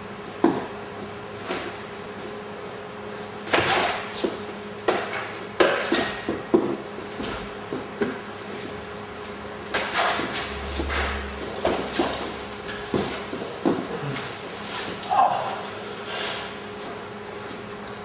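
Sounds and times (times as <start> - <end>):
people grappling on mats: 9.7 - 15.8.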